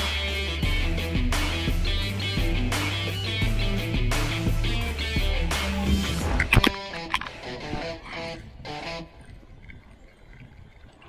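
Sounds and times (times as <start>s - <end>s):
faint water sounds: 6.3s - 11.0s
wind rumble on microphone: 7.5s - 11.0s.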